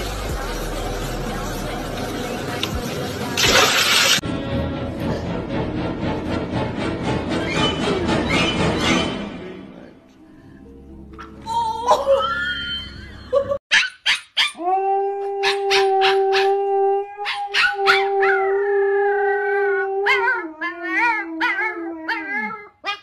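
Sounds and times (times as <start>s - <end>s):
dog yelps: 13.7s - 14.6s, 15.4s - 16.6s, 17.2s - 18.4s, 20.0s - 23.0s
puppy howling: 14.4s - 22.8s.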